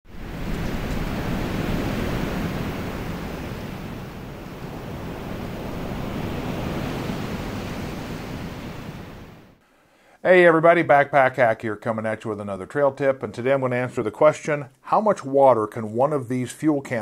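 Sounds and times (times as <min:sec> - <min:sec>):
wind blowing through trees: 0:00.1 - 0:09.6.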